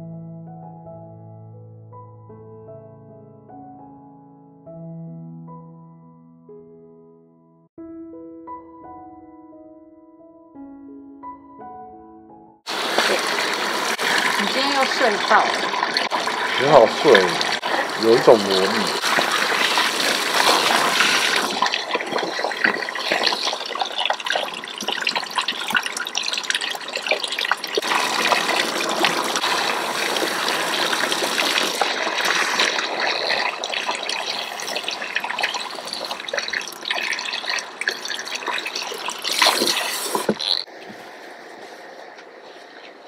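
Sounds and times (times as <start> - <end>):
running water splashing: 12.7 - 43.0.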